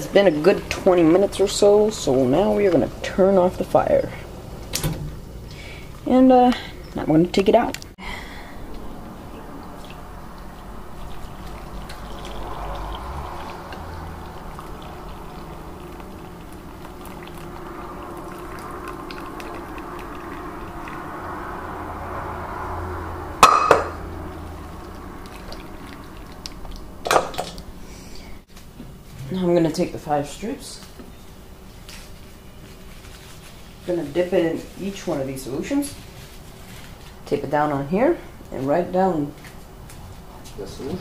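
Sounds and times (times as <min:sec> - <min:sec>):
liquid pouring through strainer: 0:09.8 - 0:21.4, 0:24.4 - 0:27.3.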